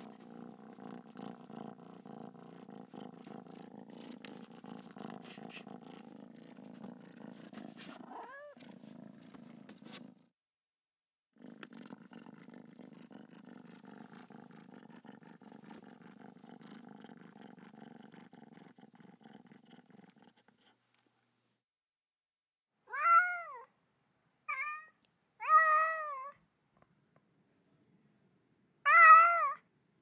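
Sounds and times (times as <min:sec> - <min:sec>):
cat purring: 0:00.0 - 0:10.3, 0:11.3 - 0:21.2
cat meowing: 0:08.1 - 0:08.6, 0:22.9 - 0:23.7, 0:24.5 - 0:26.4, 0:28.8 - 0:29.6.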